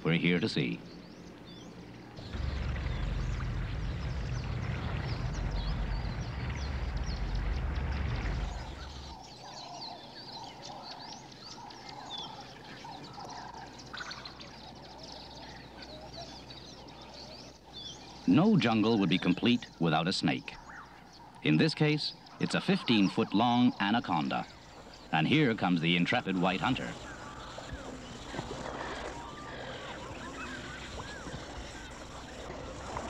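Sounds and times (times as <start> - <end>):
birds chirping and calling: 0.0 - 33.0
low rushing rumble: 2.2 - 9.2.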